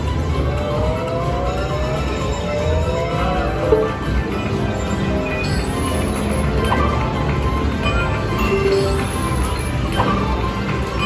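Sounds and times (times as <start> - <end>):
low casino rumble: 0.0 - 11.0
slot machine sound effects and music: 0.0 - 11.0
electronic tone gliding upward: 0.6 - 4.0.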